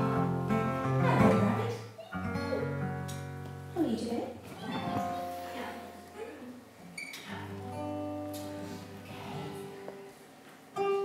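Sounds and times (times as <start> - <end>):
guitar strum: 0.0 - 3.7
quiet instrumental music: 7.2 - 11.0.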